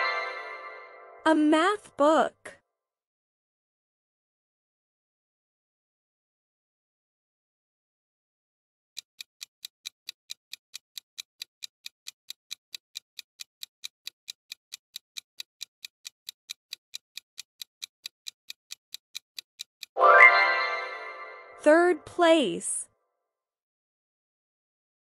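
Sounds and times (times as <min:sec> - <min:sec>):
clock ticking: 0:09.0 - 0:20.0.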